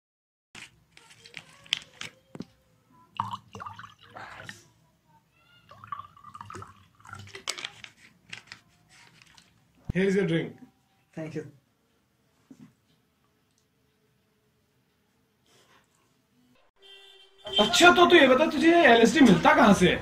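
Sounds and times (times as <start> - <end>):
liquid pouring into a glass: 3.1 - 4.6, 5.7 - 7.4.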